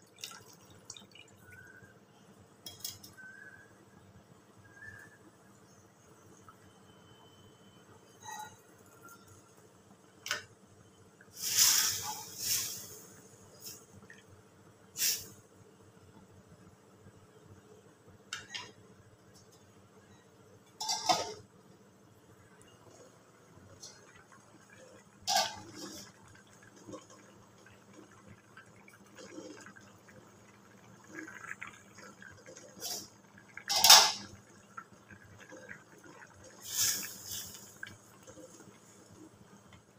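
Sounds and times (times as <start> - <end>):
curry bubbling in pan: 0.0 - 1.9, 22.5 - 39.9
pan and lid clanking: 20.8 - 21.4, 33.7 - 34.3.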